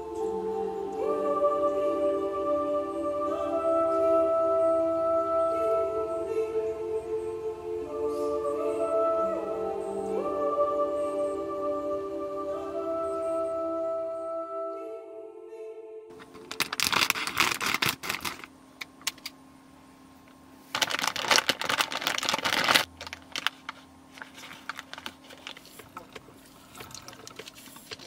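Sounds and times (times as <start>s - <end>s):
soft music: 0.0s - 16.2s
faint steady hum: 0.0s - 28.0s
plastic bag crinkling: 16.1s - 18.5s, 20.7s - 28.0s.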